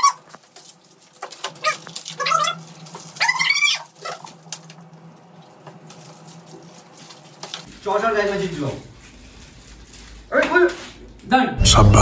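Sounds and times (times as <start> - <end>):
high-pitched squealing cries: 0.0 - 0.3, 1.6 - 4.3
wrappers crinkling: 0.0 - 11.3.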